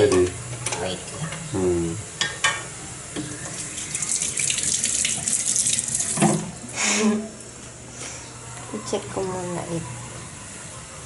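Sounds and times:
tap water running into sink: 0:03.2 - 0:06.6.

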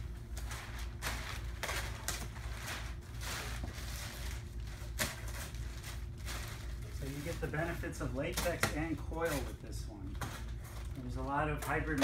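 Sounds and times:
plastic wrap crinkling: 0:00.0 - 0:09.6
low steady hum: 0:00.0 - 0:12.0.

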